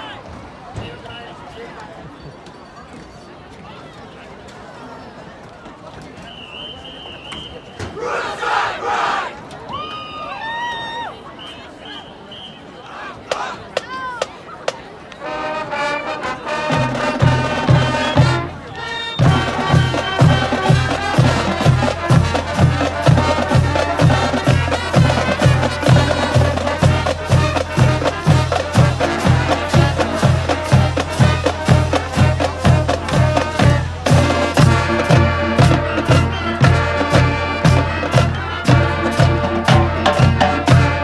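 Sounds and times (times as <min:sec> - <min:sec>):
brass melody: 0:15.2 - 0:41.0.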